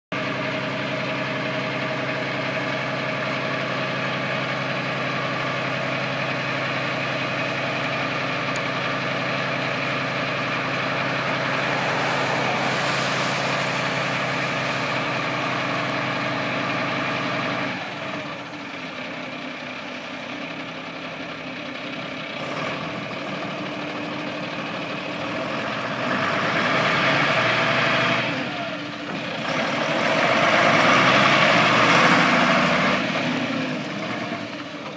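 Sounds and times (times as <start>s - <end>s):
truck diesel engine: 0.5s - 34.9s.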